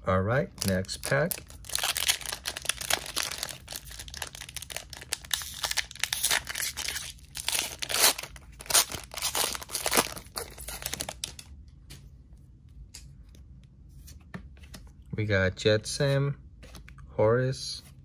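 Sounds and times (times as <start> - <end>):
foil wrapper crinkling and ripping: 0.6 - 11.4.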